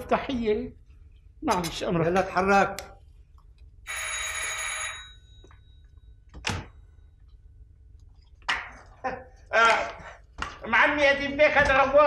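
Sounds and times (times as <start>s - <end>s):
electric doorbell ringing: 3.9s - 5.8s.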